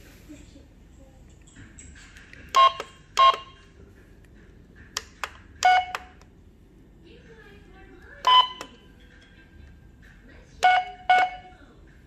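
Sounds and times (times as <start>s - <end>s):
toy cash register beeps: 2.5s - 3.7s, 5.6s - 6.2s, 8.2s - 8.9s, 10.6s - 11.5s.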